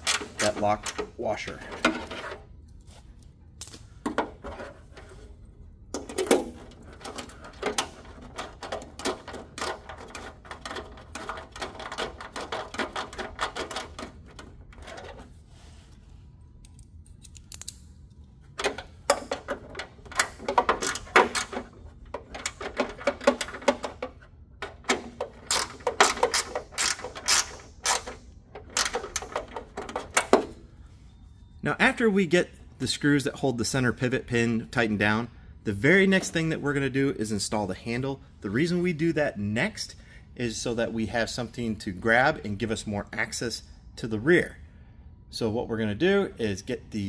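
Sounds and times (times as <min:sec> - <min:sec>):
ratchet clicking: 0:25.5 - 0:28.2.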